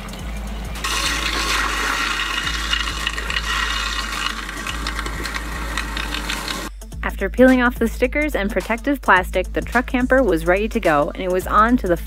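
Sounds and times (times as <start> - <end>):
faucet water pouring into sink: 0.8 - 6.7.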